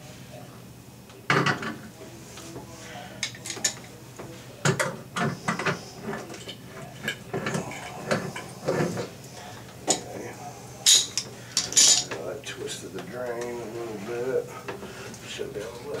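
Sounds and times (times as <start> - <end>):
hand tools clinking on drain parts: 10.9 - 12.2.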